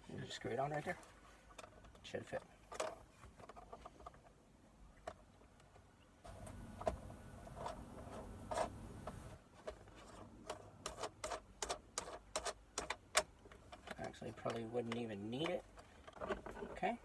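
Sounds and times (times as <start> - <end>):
hands rustling and scraping plastic: 0.0 - 4.4, 5.0 - 17.0
sharp plastic clicks: 10.4 - 16.6.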